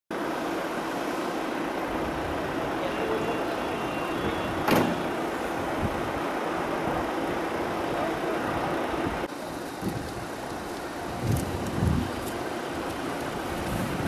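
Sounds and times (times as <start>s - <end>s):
city street traffic: 0.1s - 14.0s
sharp slam: 4.6s - 5.2s.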